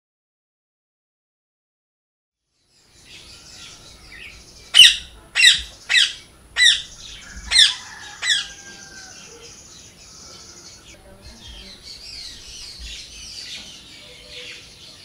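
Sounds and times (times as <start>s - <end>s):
faint birds chirping: 2.4s - 15.0s
parrot squawking: 4.7s - 9.6s.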